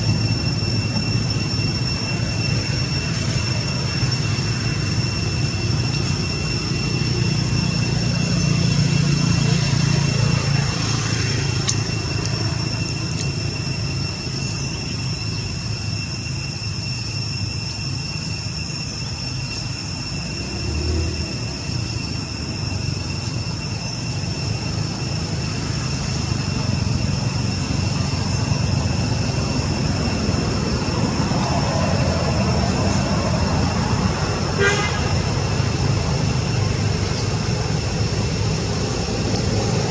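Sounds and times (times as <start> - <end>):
high-pitched whine: 0.0 - 39.9
traffic rumble: 0.0 - 39.9.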